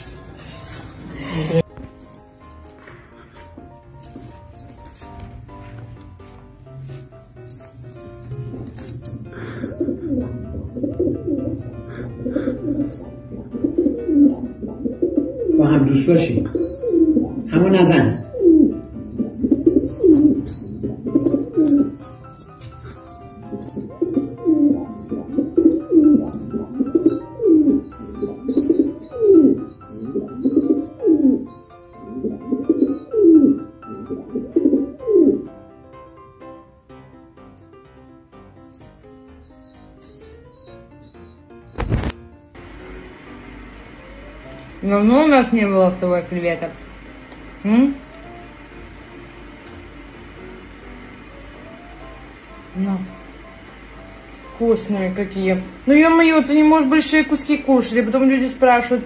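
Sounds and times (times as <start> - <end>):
faint background music: 0.0 - 59.0
pigeon cooing: 8.4 - 35.6.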